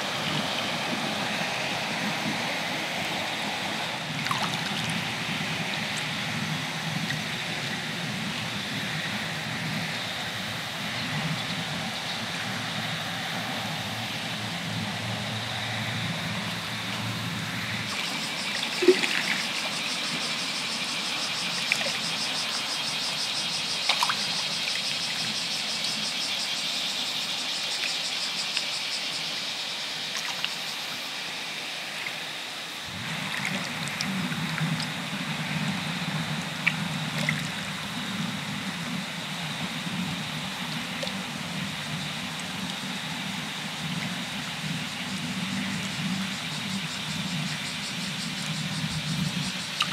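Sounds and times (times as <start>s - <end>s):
water lapping over rock: 4.0s - 5.1s, 17.8s - 22.7s
water drips: 17.9s - 20.4s, 49.7s - 49.9s.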